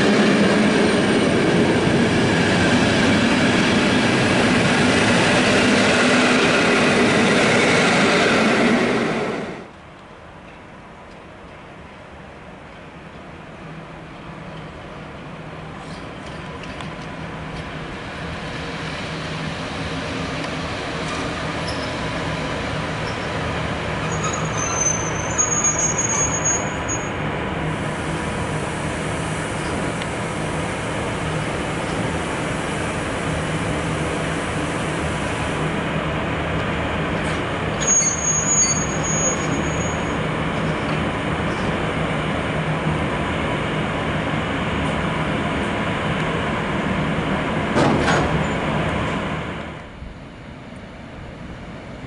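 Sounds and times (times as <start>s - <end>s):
electric locomotive rumble and hum: 0.0s - 52.0s
high wheel squeal: 21.6s - 22.1s, 24.0s - 27.2s, 37.8s - 40.3s.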